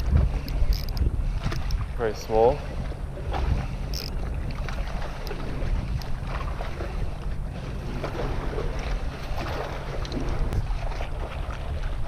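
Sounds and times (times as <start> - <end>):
faint clicks: 0.0 - 1.8, 3.9 - 6.2
wind buffeting microphone: 0.0 - 12.0.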